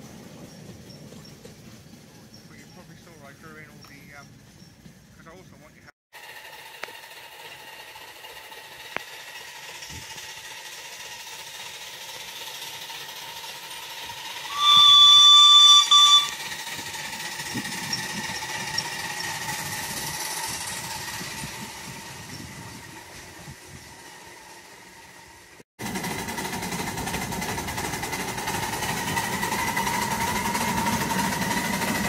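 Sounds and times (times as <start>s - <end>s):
low rumble of train passing: 0.0s - 32.0s
steam locomotive whistle: 13.8s - 20.3s.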